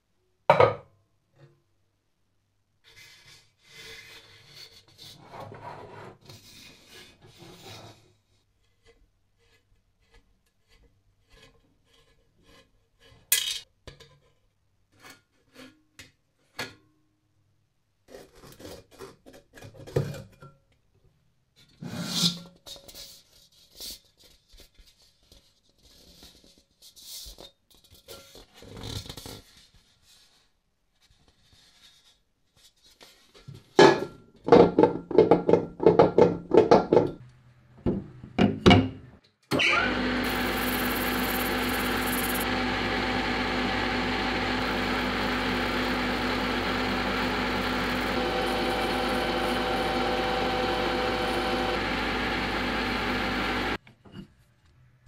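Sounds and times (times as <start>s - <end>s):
lathe motor whine: 39.6s - 53.8s.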